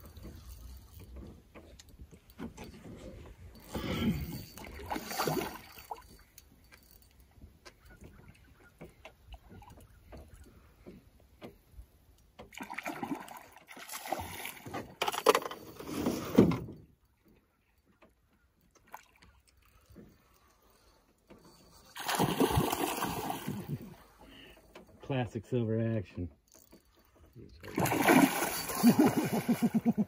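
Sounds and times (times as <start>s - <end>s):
fish thrashing in water: 22.0s - 23.9s, 27.6s - 30.0s.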